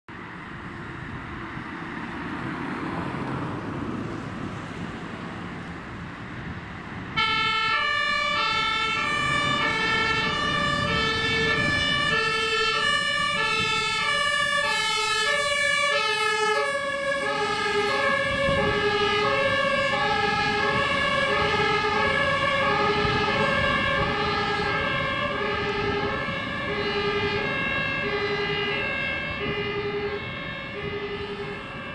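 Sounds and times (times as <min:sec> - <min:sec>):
road traffic: 0:00.1 - 0:31.9
fire engine two-tone siren: 0:07.1 - 0:31.9.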